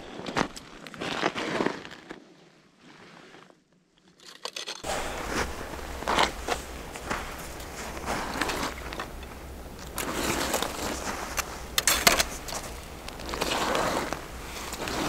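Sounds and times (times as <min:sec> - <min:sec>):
clothing rustling: 0:04.8 - 0:15.0
slush scraping: 0:04.8 - 0:15.0.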